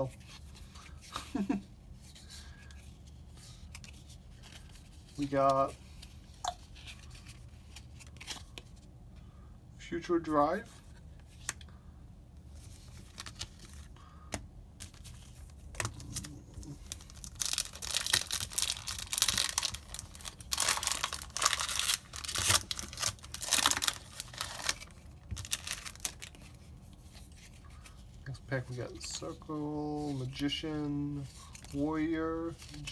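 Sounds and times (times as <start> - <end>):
foil wrapper tearing and crinkling: 15.8 - 26.4.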